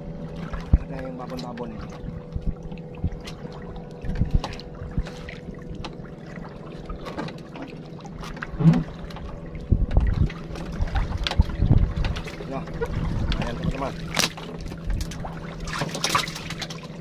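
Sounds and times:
boat engine idling: 0:00.0 - 0:17.0
water splashing against hull: 0:00.0 - 0:17.0.

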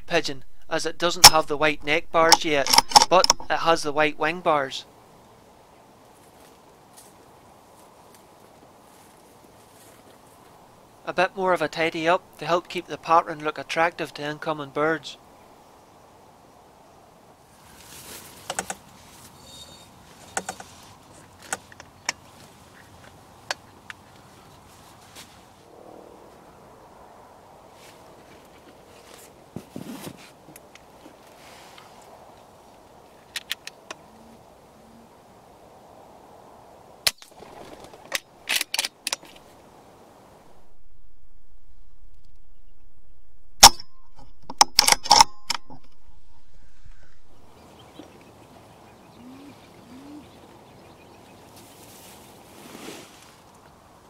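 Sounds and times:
sharp clicks of gear handled: 0:02.3 - 0:03.4, 0:33.3 - 0:34.0, 0:37.1 - 0:39.4, 0:44.4 - 0:46.0
sharp clicks and rattles: 0:02.3 - 0:03.5, 0:43.6 - 0:46.0.

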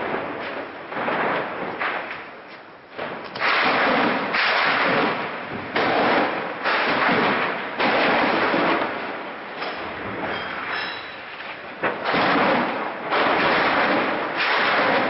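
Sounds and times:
automatic gunfire bursts: 0:03.4 - 0:09.0, 0:12.0 - 0:15.0.

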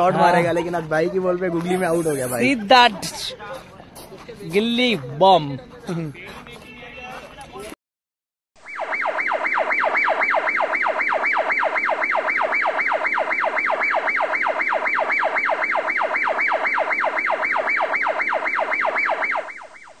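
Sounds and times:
electronic siren yelping: 0:08.6 - 0:20.0.

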